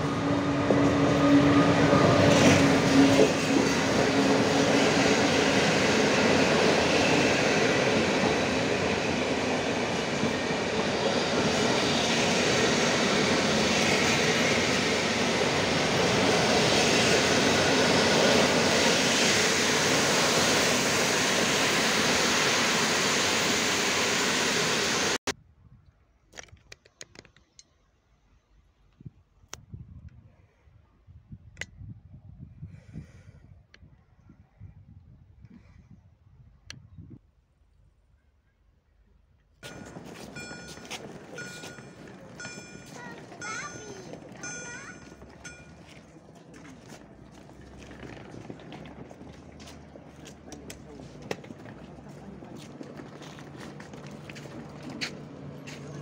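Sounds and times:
train wheels on rails: 0.0 - 25.3, 39.6 - 56.0.

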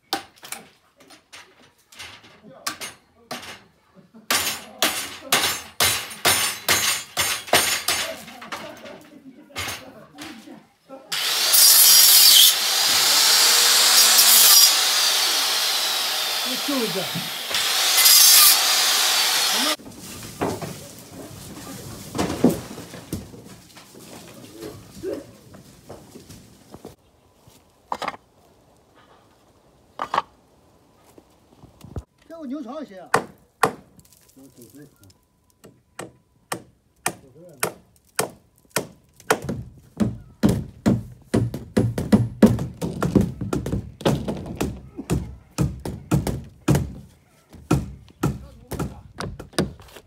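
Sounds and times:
hammers nailing wooden boards: 4.3 - 8.2, 33.1 - 33.9, 35.6 - 49.9
angle grinder cutting: 11.1 - 19.8.

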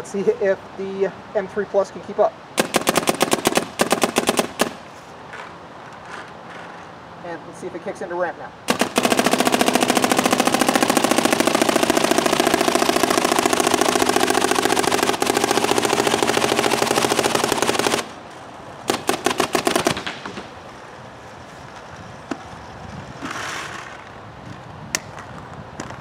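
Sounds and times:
paintball marker rapid firing: 2.6 - 4.8, 8.7 - 18.2, 18.9 - 20.5.

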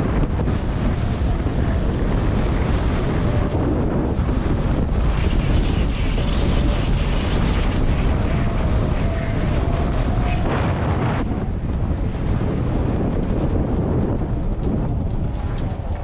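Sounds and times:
skis sliding over snow: 0.0 - 16.0
wind buffeting microphone: 0.0 - 16.0.

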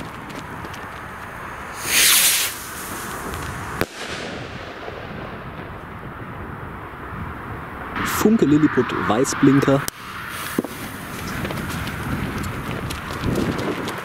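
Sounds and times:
firework rushing hiss: 1.2 - 5.8, 9.9 - 12.2
firework bang: 1.7 - 6.0, 10.3 - 11.0.

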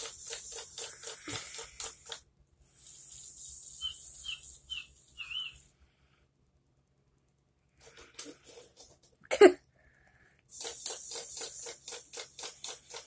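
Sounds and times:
hiss: 10.5 - 13.0.

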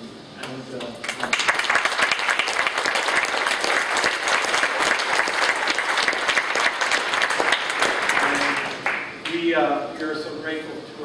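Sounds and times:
congregation applauding: 1.0 - 9.4.

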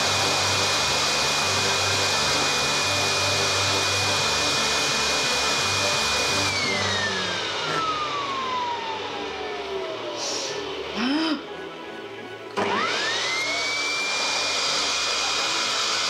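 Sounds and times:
motor whine spinning down: 0.0 - 11.0, 11.7 - 16.0
blower air rush: 0.0 - 11.1.

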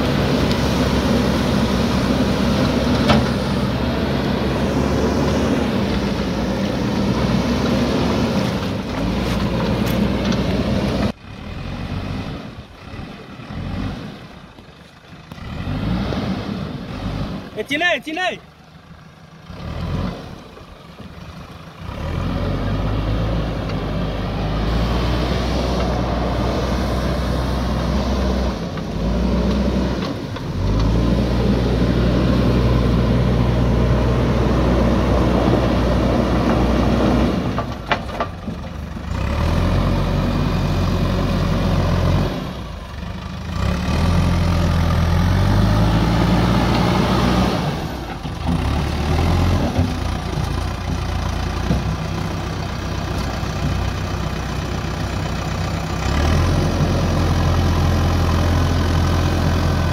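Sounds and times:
diesel engine running under load: 0.0 - 59.9.

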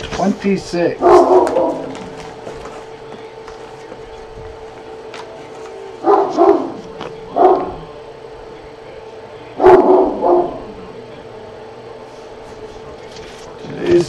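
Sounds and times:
faint steady hum: 0.0 - 14.0
dog barking: 1.0 - 2.1, 6.0 - 7.9, 9.6 - 10.8.

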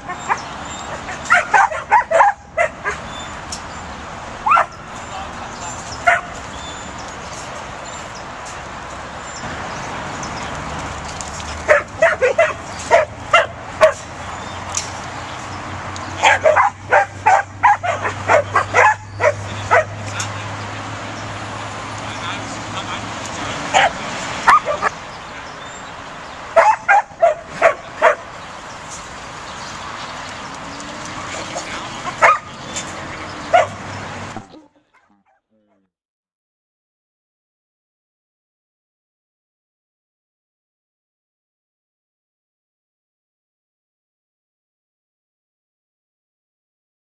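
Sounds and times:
puppy yapping: 0.0 - 3.1, 11.7 - 14.0, 16.2 - 20.0, 23.7 - 24.9, 26.6 - 28.2, 32.0 - 32.5, 33.4 - 33.8, 34.4 - 35.4.

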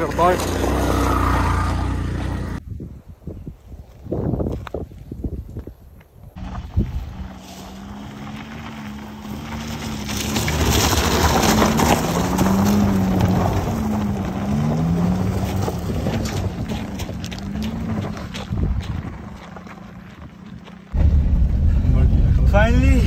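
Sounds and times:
tyres on gravel: 0.0 - 2.6, 3.8 - 23.0
car engine revving: 6.4 - 18.3.

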